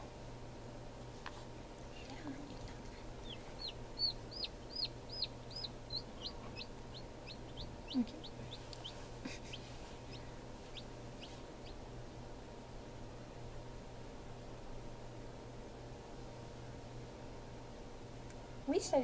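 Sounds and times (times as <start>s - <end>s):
incubator humming: 0.0s - 19.0s
chick peeping: 3.2s - 11.8s.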